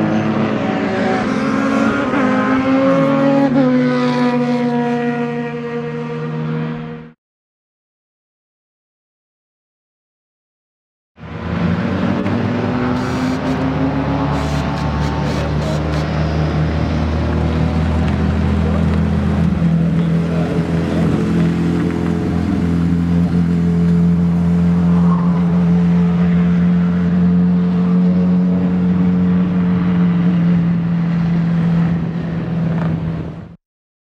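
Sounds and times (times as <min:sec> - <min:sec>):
loud motorcycle engine running: 0:12.1 - 0:24.6.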